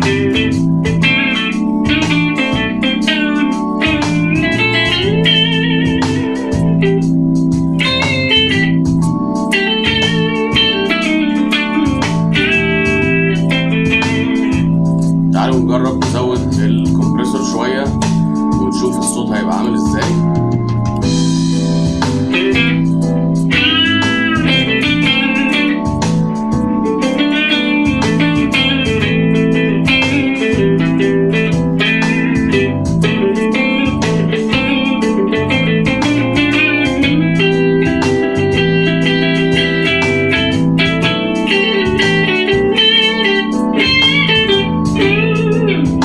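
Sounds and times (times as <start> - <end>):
blues backing track: 0.0 - 46.0
electric guitar blues lead: 0.0 - 46.0.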